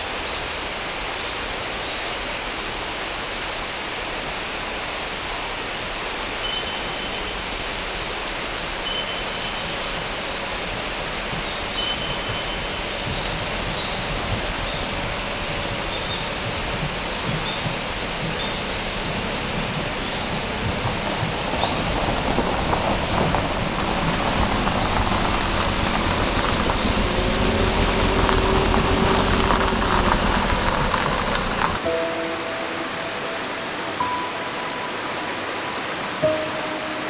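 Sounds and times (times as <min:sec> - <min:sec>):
steady rushing noise: 0:00.0 - 0:37.0
tyres crunching over gravel: 0:19.2 - 0:31.8.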